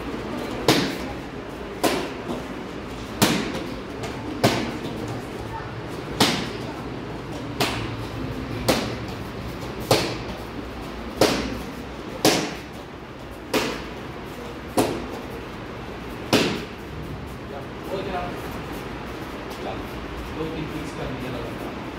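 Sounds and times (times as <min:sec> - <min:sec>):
kicks slapping kick paddle: 0:00.6 - 0:01.1, 0:03.2 - 0:03.7, 0:09.7 - 0:10.4, 0:11.1 - 0:12.8, 0:16.3 - 0:16.7.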